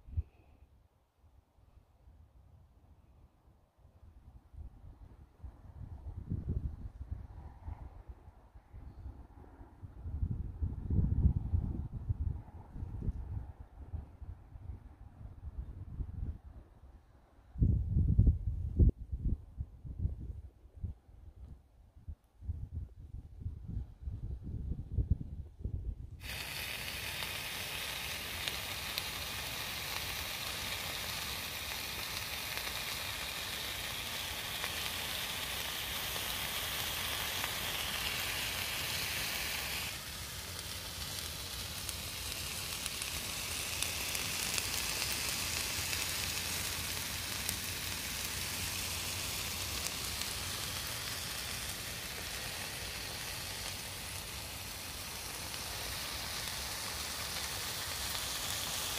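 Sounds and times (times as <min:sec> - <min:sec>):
chicken sizzling in a pan: 0:26.2 - 0:58.9.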